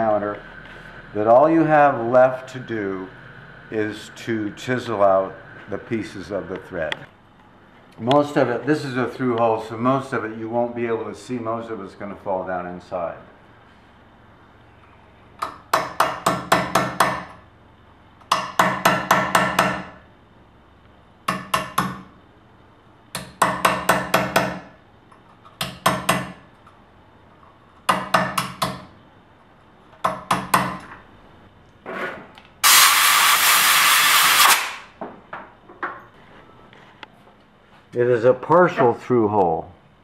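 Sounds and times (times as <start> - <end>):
loud steady hiss: 32.6 - 35.0.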